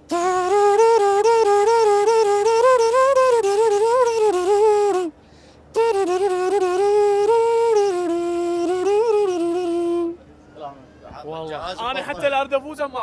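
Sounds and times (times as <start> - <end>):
man humming a melody: 0.0 - 10.2.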